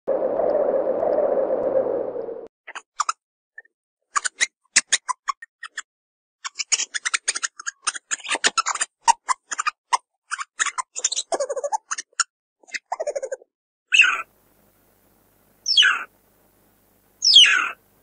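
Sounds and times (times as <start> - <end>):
meerkat clicking calls: 2.7 - 14.3, 15.7 - 16.1, 17.2 - 17.8
meerkat lower pitched call: 13.9 - 14.3, 15.6 - 16.1, 17.2 - 17.8.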